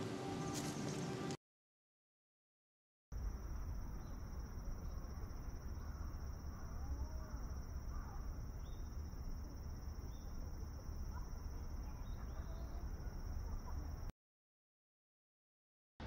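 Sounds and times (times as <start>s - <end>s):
constant low rumble: 3.2s - 14.1s
faint bird chirps: 3.2s - 14.1s
high insect drone: 3.2s - 14.1s.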